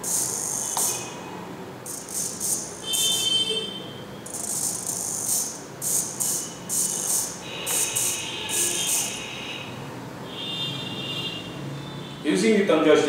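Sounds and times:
servo motor whirring: 0.0 - 1.1, 4.3 - 9.2.

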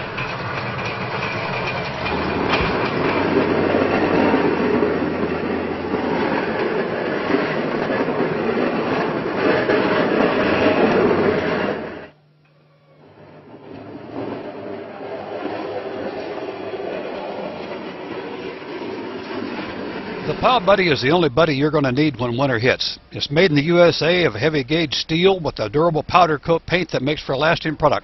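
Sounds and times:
plow blade scraping through snow: 0.0 - 12.1, 13.1 - 21.0
low engine drone: 0.0 - 24.8.

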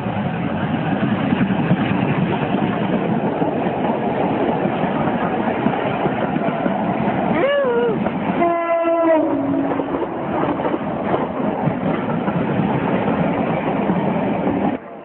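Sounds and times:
train passing: 0.0 - 15.0
train horn blast: 8.4 - 10.0.

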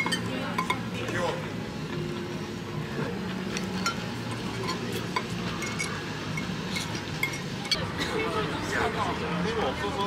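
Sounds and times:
cutlery clinking on a plate: 0.0 - 0.8
low background noise: 0.0 - 10.0.

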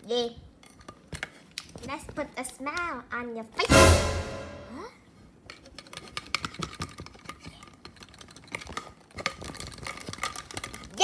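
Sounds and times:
plastic toy figures clicking: 5.5 - 11.0.

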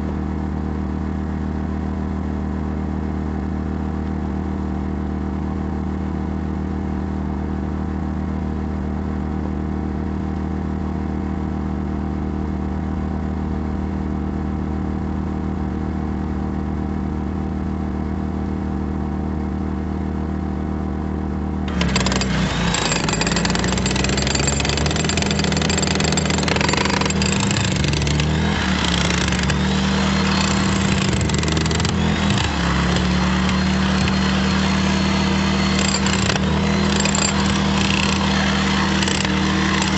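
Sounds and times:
corded power tool running: 21.7 - 39.9
portable generator engine running: 21.7 - 39.9.

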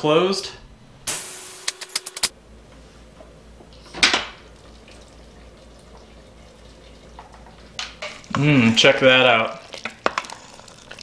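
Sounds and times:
steam hiss: 1.1 - 2.0.

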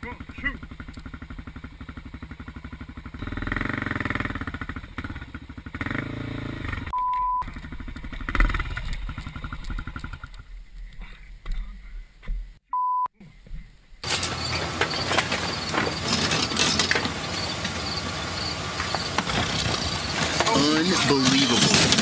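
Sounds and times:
motorcycle engine running: 0.0 - 10.9
short steady beeps: 6.9 - 7.4, 12.7 - 13.1.

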